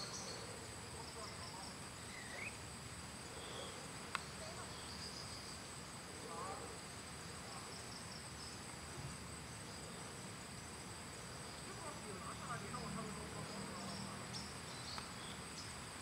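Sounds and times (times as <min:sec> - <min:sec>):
faint chirps: 0:00.0 - 0:08.7
insects droning: 0:00.0 - 0:16.0.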